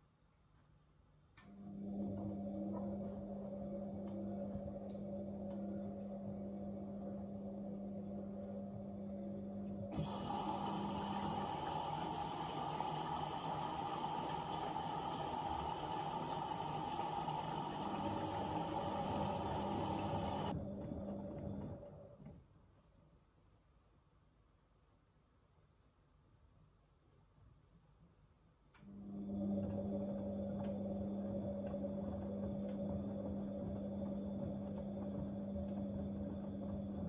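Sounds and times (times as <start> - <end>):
washing machine humming: 1.4 - 22.6, 28.8 - 37.0
water rushing: 10.5 - 20.5.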